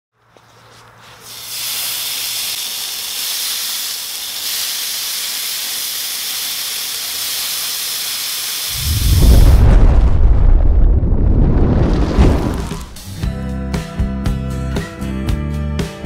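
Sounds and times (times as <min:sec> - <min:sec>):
meat sizzling on a grill: 0:01.2 - 0:09.0.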